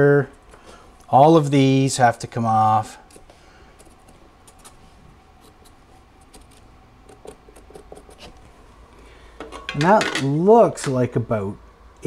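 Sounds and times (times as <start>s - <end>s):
marker scratching and tapping metal: 5.4s - 8.3s.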